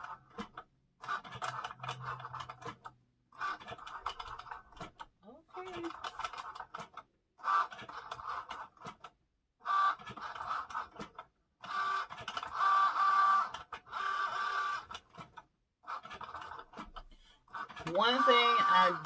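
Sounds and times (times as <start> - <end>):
cutting machine motors whirring: 9.7 - 15.3, 16.0 - 19.0.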